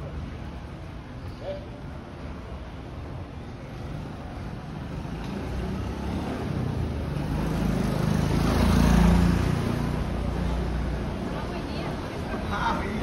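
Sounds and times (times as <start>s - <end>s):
vehicle passing by: 3.8s - 13.0s.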